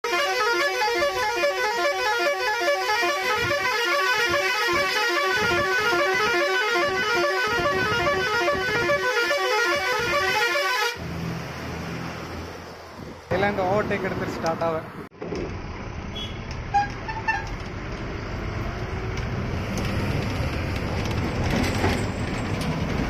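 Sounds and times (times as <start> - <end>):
musical truck horn: 0.0 - 11.0.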